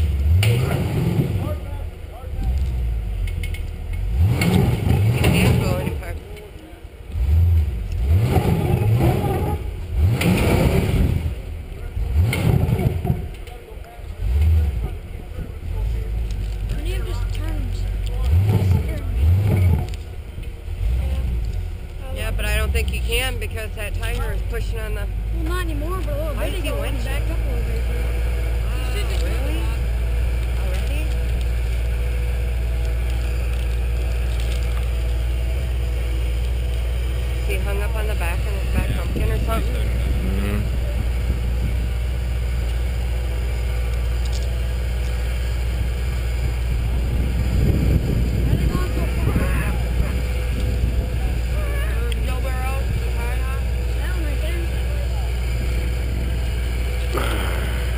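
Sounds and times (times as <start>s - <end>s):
truck engine revving in bursts: 0.0s - 1.7s, 4.0s - 6.0s, 7.1s - 13.4s, 14.2s - 15.0s, 18.0s - 20.0s, 37.7s - 43.6s, 55.4s - 57.9s
truck engine running: 0.0s - 57.9s.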